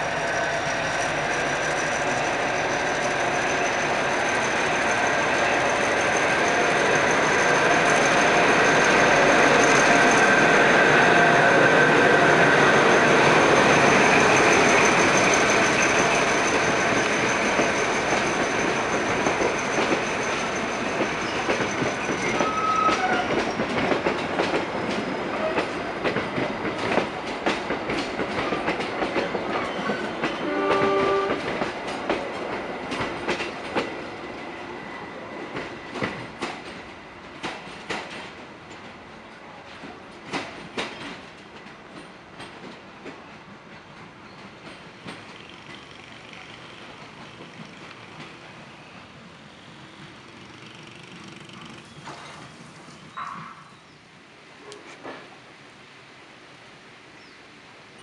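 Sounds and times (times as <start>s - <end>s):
diesel locomotive engine: 0.0s - 32.2s, 41.7s - 53.7s
train wheels clickety-clack: 0.9s - 34.6s, 35.4s - 53.7s, 54.7s - 55.4s.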